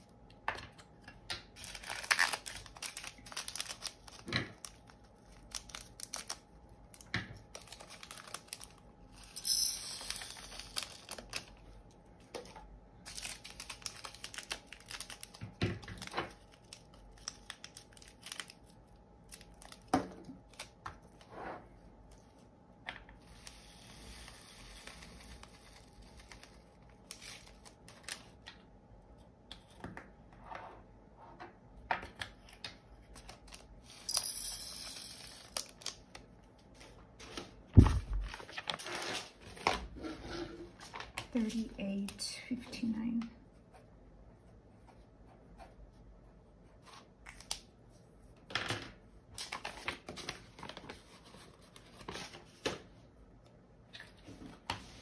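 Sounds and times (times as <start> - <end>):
plastic bags crinkling and tearing: 1.6 - 8.8, 10.3 - 11.6, 13.0 - 20.8, 24.8 - 28.4.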